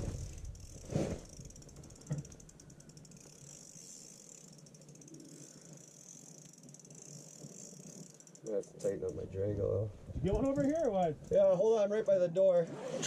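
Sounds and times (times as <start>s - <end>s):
fishing reel drag clicking: 0.2s - 9.4s.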